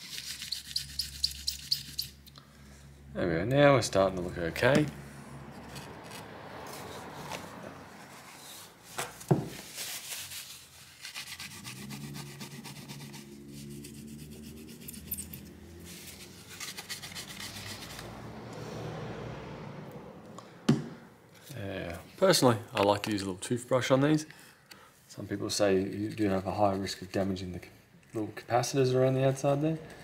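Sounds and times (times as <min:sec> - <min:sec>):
cloth scrubbing: 0:06.1 - 0:15.0.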